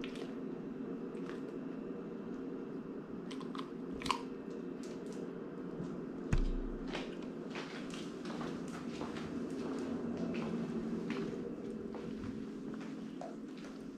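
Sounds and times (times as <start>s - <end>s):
dog crunching a treat: 3.3s - 5.3s.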